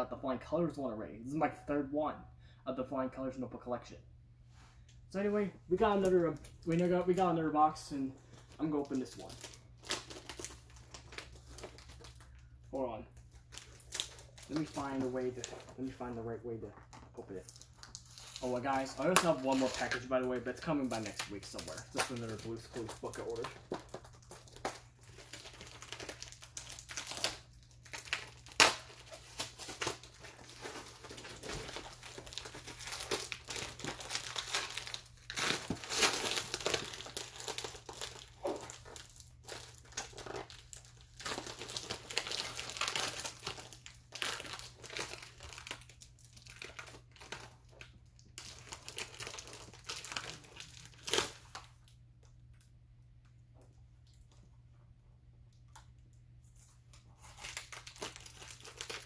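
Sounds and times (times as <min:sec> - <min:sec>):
paper packaging crinkling and tearing: 0:08.2 - 0:12.5, 0:13.1 - 0:52.0, 0:56.9 - 0:59.0.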